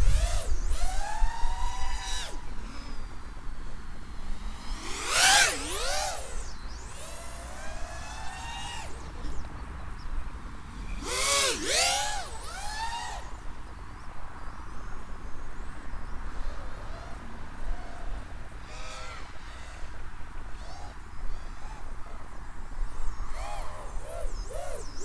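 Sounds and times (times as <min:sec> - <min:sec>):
quadcopter motors whining: 0:00.0 - 0:09.6, 0:10.7 - 0:13.7, 0:18.6 - 0:22.0, 0:22.9 - 0:25.0.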